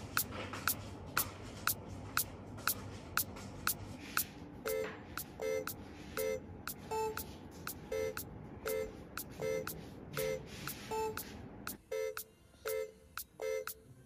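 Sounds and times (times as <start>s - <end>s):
clock ticking: 1.2s - 13.8s
short electronic beeps: 4.6s - 13.8s.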